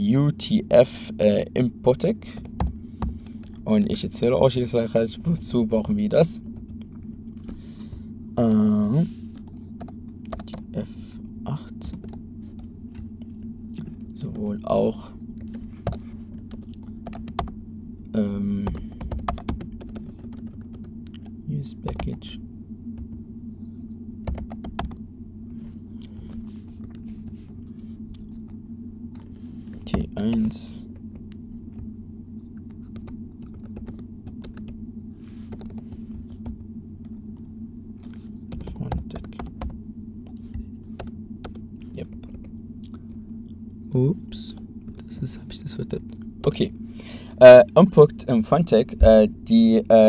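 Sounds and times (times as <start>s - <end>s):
steady low hum: 0.0s - 50.0s
keyboard typing clicks: 18.6s - 21.3s, 24.2s - 25.0s, 32.8s - 34.8s.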